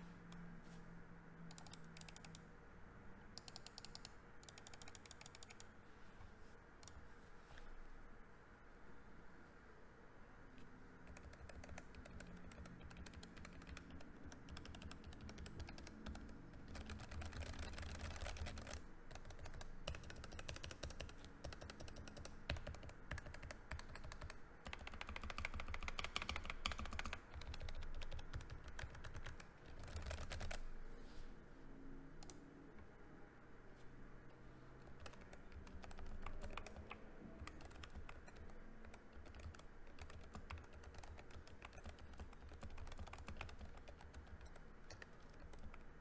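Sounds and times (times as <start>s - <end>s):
mechanical keyboard typing: 1.5s - 2.4s, 3.4s - 5.6s, 11.0s - 30.6s, 34.8s - 45.9s.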